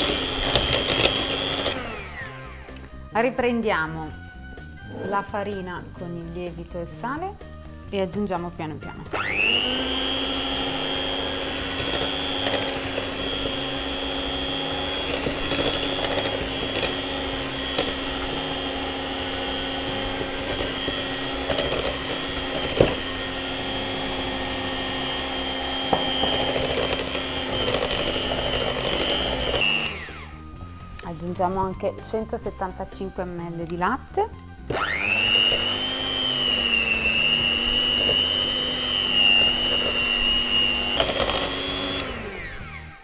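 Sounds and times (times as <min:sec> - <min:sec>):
electric hand mixer whisking: 0:00.0 - 0:03.0, 0:09.0 - 0:31.0, 0:34.6 - 0:43.0.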